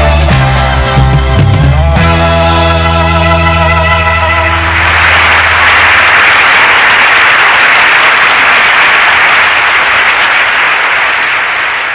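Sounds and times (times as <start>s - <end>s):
organ chord: 0.0s - 7.0s
audience applause: 4.0s - 11.9s.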